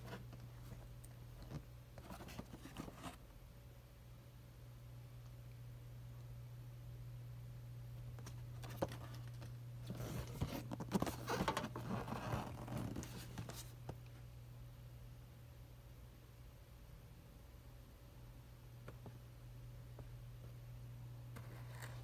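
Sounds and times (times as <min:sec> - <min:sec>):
steady low hum: 0:00.0 - 0:22.0
cardboard box rustling: 0:09.8 - 0:13.7.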